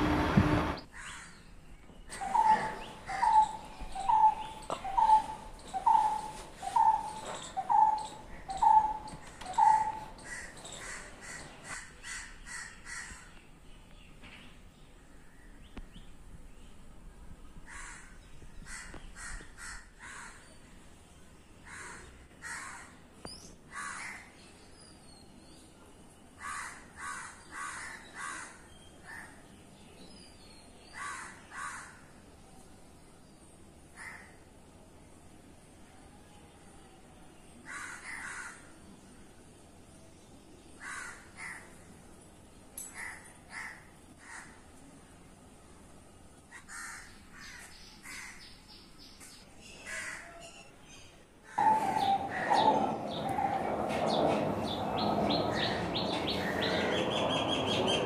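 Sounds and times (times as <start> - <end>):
crows cawing: 9.6 - 13.3, 17.7 - 20.4, 21.6 - 23.0, 23.7 - 24.3, 26.4 - 29.4, 31.0 - 32.1, 34.0 - 34.4, 37.6 - 38.7, 40.8 - 41.7, 43.0 - 44.6, 46.5 - 48.4, 49.9 - 50.4, 51.5 - 53.7, 55.5 - 57.4.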